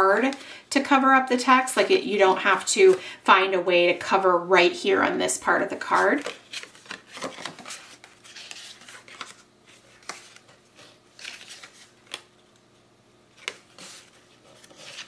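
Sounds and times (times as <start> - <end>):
paper cards rustling: 5.7 - 12.6, 13.3 - 15.0.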